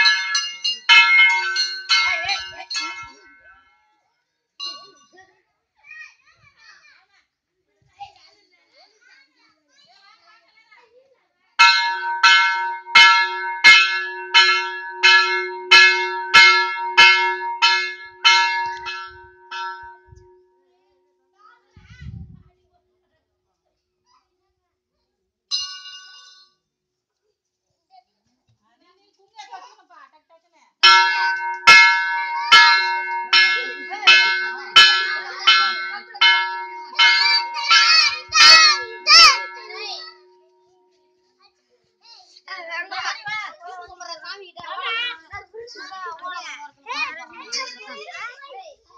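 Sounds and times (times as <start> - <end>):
temple bell strikes: 0.0 - 3.4, 11.6 - 20.4, 30.8 - 40.6.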